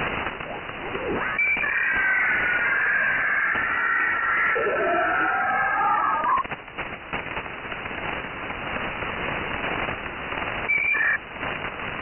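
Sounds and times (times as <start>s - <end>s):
radio hiss and crackling static: 0.0s - 12.0s
swooping radio whistle tone: 0.8s - 6.4s, 10.7s - 11.2s.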